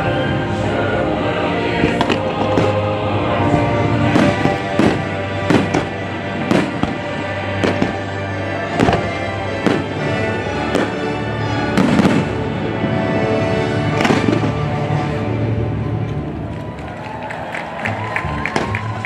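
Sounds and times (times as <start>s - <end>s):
music soundtrack: 0.0s - 19.0s
fireworks bursting with sharp bangs: 1.8s - 13.0s, 13.8s - 14.9s.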